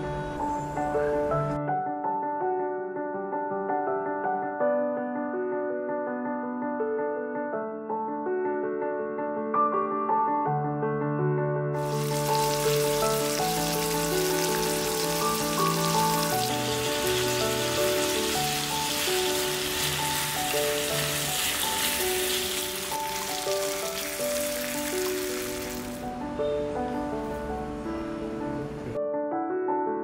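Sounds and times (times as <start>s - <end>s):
soft piano music: 0.0s - 30.0s
food sizzling in a pan: 11.8s - 26.0s.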